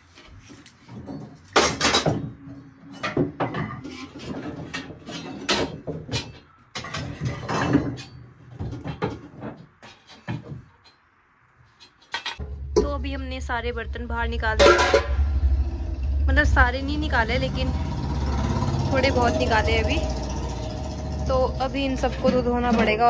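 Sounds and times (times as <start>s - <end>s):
metal utensils clattering on wood: 0.8s - 11.0s, 11.7s - 12.5s, 21.9s - 23.0s.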